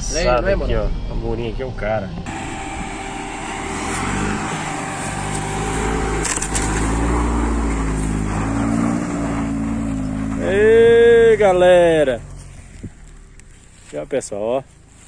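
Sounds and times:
car engine under load: 0.0 - 15.0
tyre and wind noise: 12.3 - 14.0.

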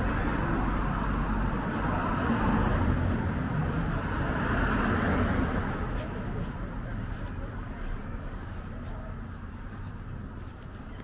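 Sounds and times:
cars driving past: 0.0 - 8.6.

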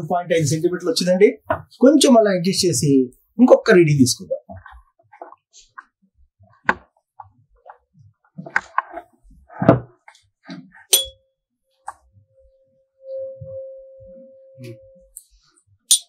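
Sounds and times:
tuning fork ringing: 12.2 - 15.2.

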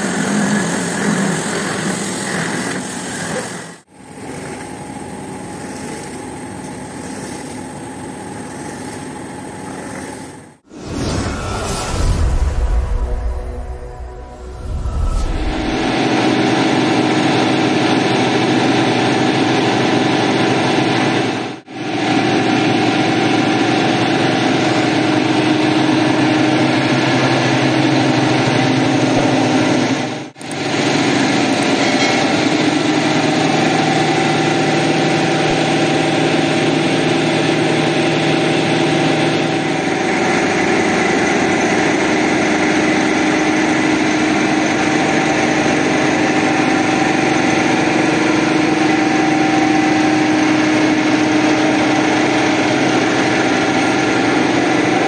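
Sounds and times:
machine motor droning: 3.9 - 10.6, 11.3 - 55.0.

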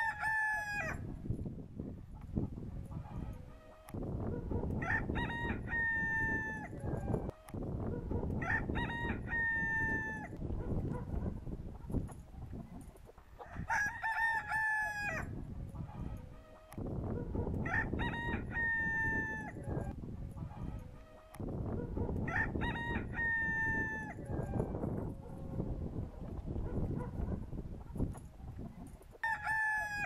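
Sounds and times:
rooster crowing: 0.0 - 1.1, 4.8 - 7.1, 8.4 - 10.4, 13.4 - 15.3, 17.6 - 19.9, 22.3 - 25.6, 29.2 - 30.0.

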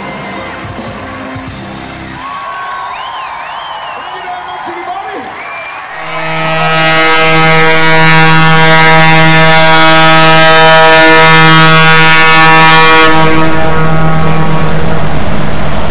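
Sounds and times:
ship's horn blast: 5.9 - 15.9.

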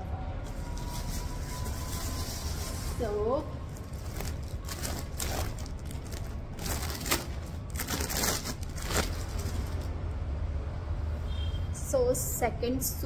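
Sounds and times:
wrapping rustling and crinkling: 0.4 - 10.0.

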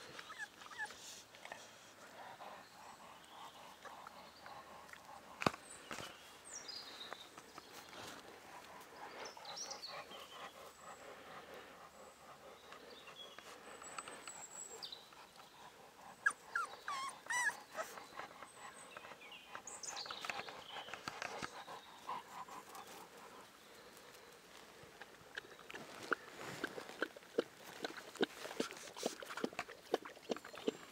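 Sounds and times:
puppy whimpering: 0.2 - 1.0, 16.2 - 18.0.

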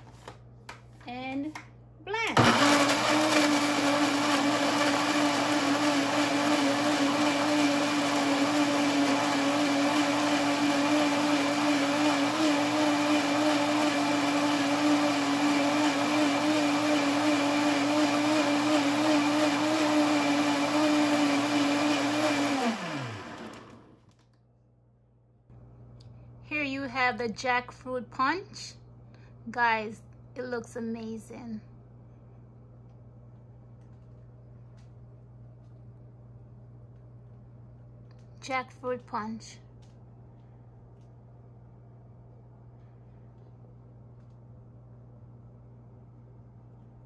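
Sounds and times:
blender motor running: 2.4 - 24.0.

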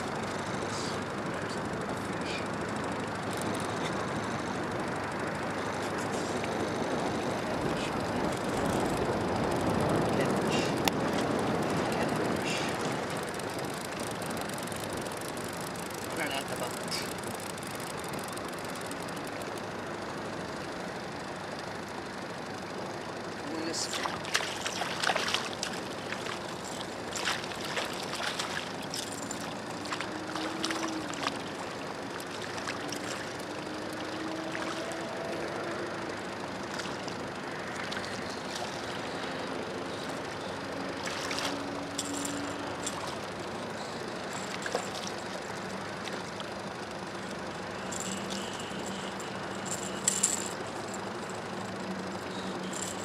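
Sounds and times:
faint low wavering hum: 0.0 - 53.0
fish splashing at water surface: 23.9 - 31.4.

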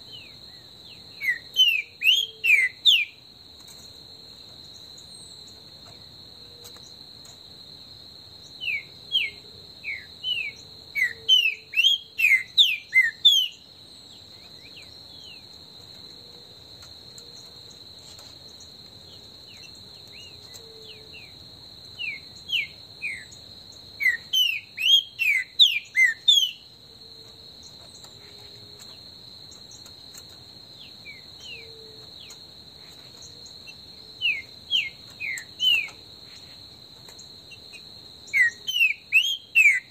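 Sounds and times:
high insect buzz: 0.0 - 39.9
bird singing whistled notes: 0.1 - 3.2, 8.5 - 15.4, 22.0 - 23.4, 24.0 - 26.7, 33.2 - 36.4, 38.3 - 39.9.

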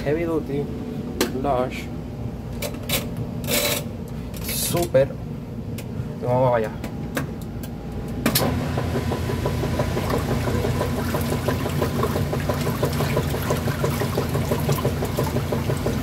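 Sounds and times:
washing machine agitator churning water: 8.4 - 16.0.

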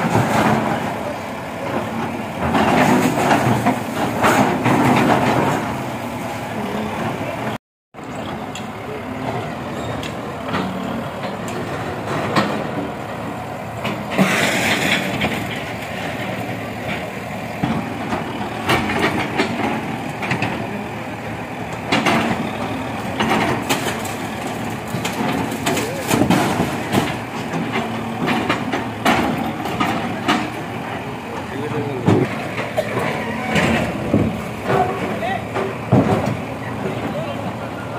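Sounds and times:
diesel engines running: 0.0 - 37.9
people talking: 6.5 - 11.3, 25.6 - 26.6, 29.6 - 37.9
masonry cracking: 21.8 - 30.8
debris crashing down: 23.2 - 30.5.

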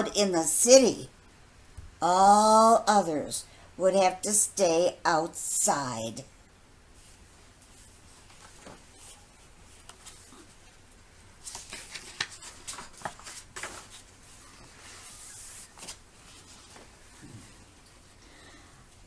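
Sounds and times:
paper pages rustling: 7.0 - 10.8, 11.4 - 17.2.

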